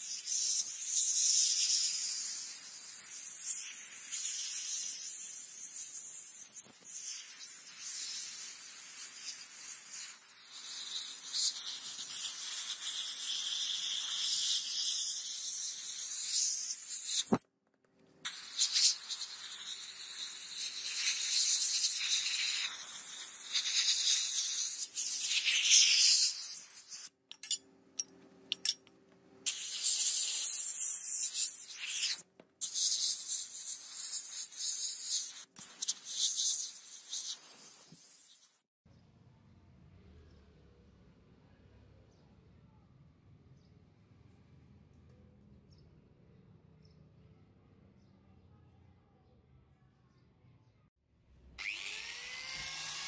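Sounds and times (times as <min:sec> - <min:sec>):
sandblast gun hissing: 0:00.0 - 0:17.4, 0:18.3 - 0:27.1, 0:29.5 - 0:38.6.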